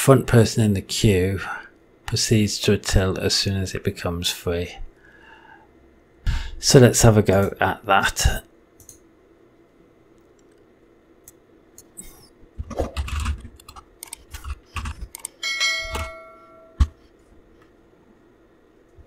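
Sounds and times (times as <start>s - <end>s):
keyboard keystrokes: 12.6s - 16.2s.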